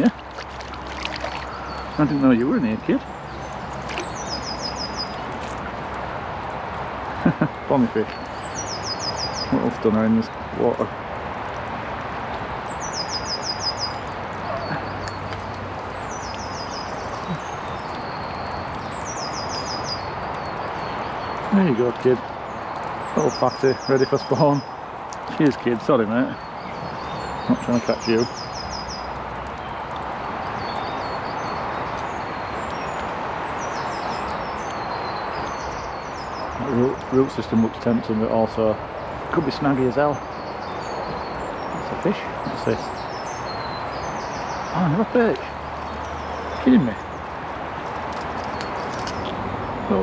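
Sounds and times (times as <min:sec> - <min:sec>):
river water rushing: 0:00.0 - 0:21.4
songbird singing: 0:00.0 - 0:50.0.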